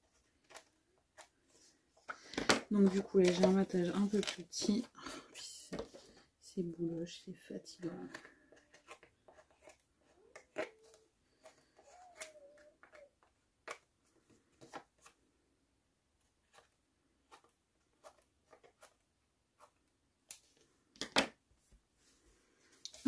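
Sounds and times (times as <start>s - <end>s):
paper rustling and tapping: 2.1s - 4.9s.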